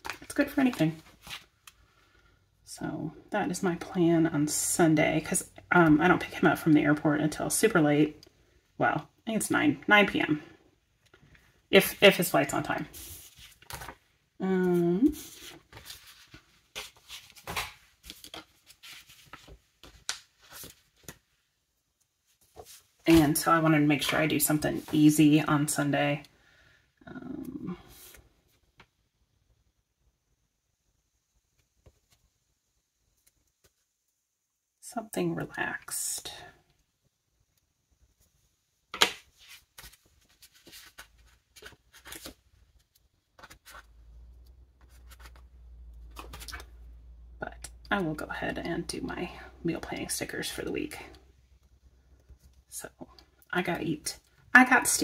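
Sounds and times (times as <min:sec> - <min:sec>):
paper sheets rustling: 0:12.5 - 0:14.0, 0:15.0 - 0:21.2, 0:22.3 - 0:23.4, 0:39.0 - 0:43.9.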